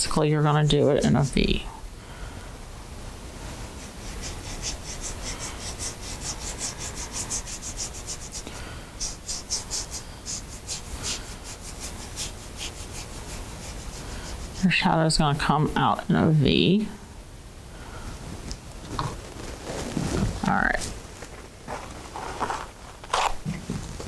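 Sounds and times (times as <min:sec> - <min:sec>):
paintbrush scrubbing on canvas: 0:00.5 - 0:01.6, 0:03.5 - 0:15.4, 0:19.2 - 0:23.4.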